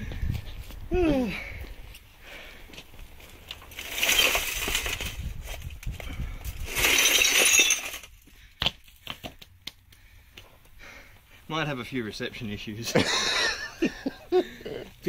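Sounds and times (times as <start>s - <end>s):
broken glass crunching: 3.7s - 5.3s, 6.5s - 8.2s
glass clinks: 6.8s - 8.1s.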